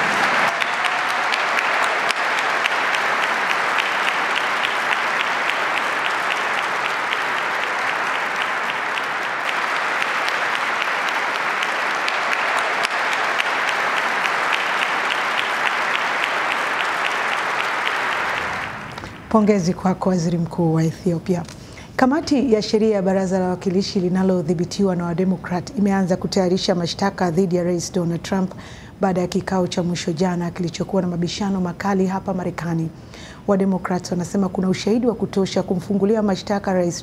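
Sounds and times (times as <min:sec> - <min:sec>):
audience applauding: 0:00.0 - 0:19.4.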